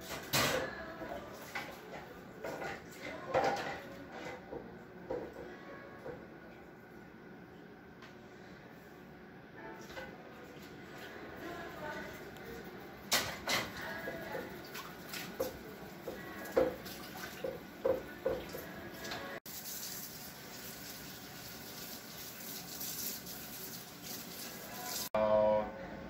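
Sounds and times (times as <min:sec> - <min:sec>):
dishes clinking in sink: 0:01.5 - 0:06.2, 0:13.1 - 0:14.6, 0:15.2 - 0:19.4
tap running into sink: 0:15.4 - 0:19.2.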